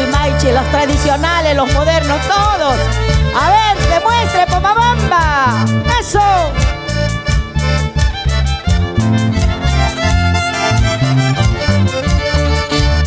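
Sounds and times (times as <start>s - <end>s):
live folk band playing: 0.0s - 13.0s.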